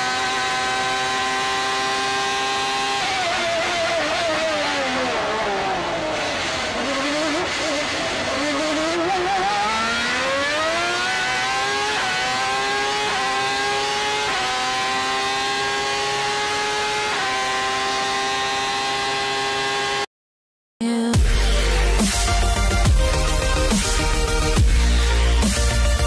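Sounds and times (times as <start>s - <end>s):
racing car engine revving: 0.0s - 20.1s.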